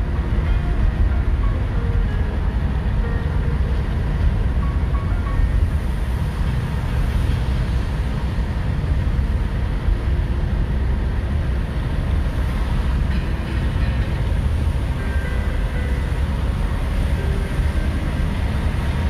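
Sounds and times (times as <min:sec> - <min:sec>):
engine and road rumble: 0:00.0 - 0:19.0
tyres hissing on wet road: 0:05.7 - 0:19.0.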